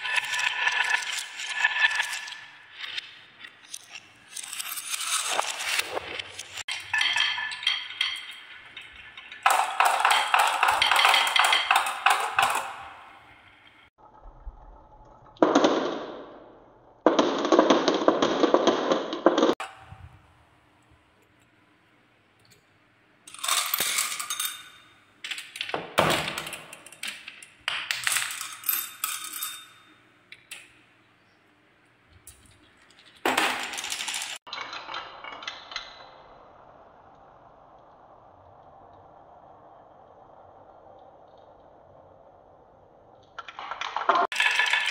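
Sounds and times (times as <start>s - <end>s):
marbles rolling on wooden grooves: 0.0s - 13.7s, 32.2s - 36.4s, 43.0s - 44.9s.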